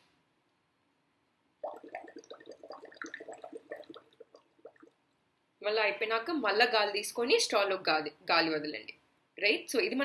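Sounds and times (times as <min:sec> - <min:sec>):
bubbling through a straw in water: 0:01.6 - 0:05.1.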